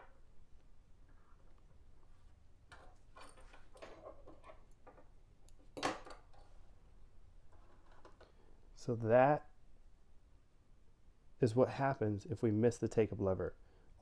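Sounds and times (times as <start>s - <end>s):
small clicks and rustles: 2.7s - 6.6s.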